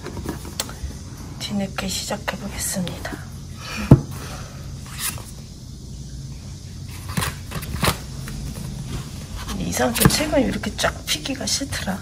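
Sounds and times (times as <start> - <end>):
book knocking on table: 3.9 - 4.1.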